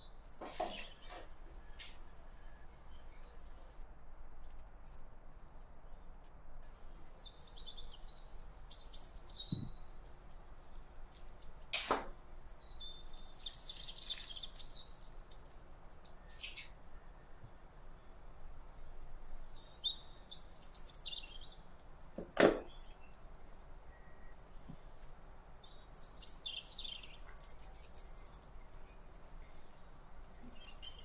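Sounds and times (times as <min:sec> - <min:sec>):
birds chirping: 0:00.0 - 0:31.0
soft knock: 0:09.5 - 0:09.8
sharp click of plastic packet: 0:11.7 - 0:12.2.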